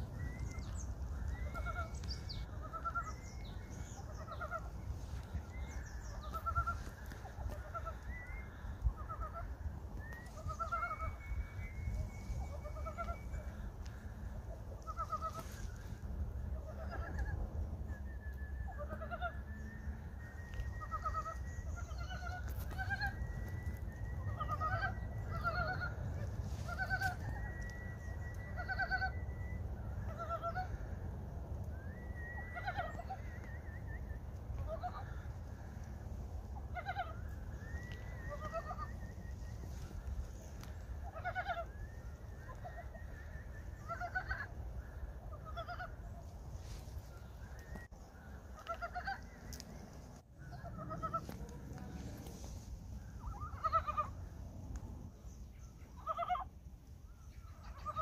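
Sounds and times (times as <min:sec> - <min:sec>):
frogs clucking: 0:00.0 - 0:05.3
frogs croaking: 0:00.0 - 0:15.9, 0:24.3 - 0:30.9
low steady background noise: 0:00.0 - 0:58.0
steady low rumble: 0:00.0 - 0:58.0.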